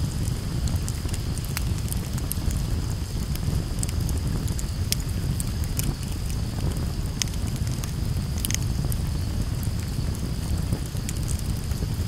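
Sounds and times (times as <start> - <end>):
burning wood popping: 0.0 - 12.0
campfire crackling: 0.0 - 12.0.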